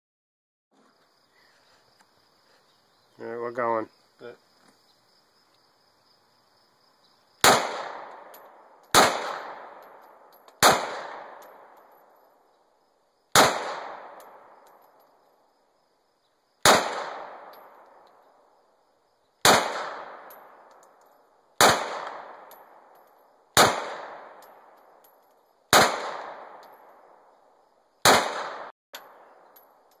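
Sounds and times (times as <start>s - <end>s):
pistol shots with echo: 7.4s - 11.8s, 13.3s - 14.7s, 16.6s - 17.8s, 19.4s - 20.6s, 21.6s - 22.9s, 23.6s - 24.8s, 25.7s - 27.3s, 28.0s - 29.3s.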